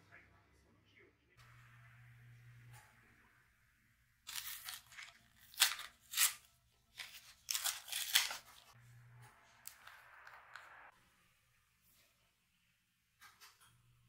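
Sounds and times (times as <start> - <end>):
packaging tearing and crinkling: 4.3 - 8.7.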